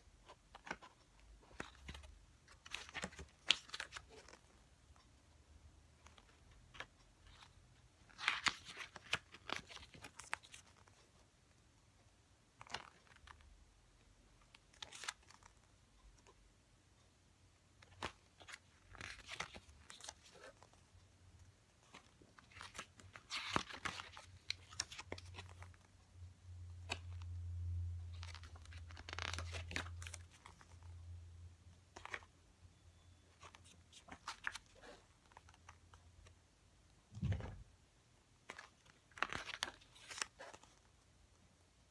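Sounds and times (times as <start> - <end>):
pages turning: 0.2 - 4.5, 6.0 - 11.0, 12.6 - 13.4, 14.4 - 15.6, 17.8 - 20.8, 21.8 - 25.9, 26.8 - 27.4, 28.1 - 30.9, 31.9 - 32.3, 33.3 - 36.0, 38.4 - 41.0.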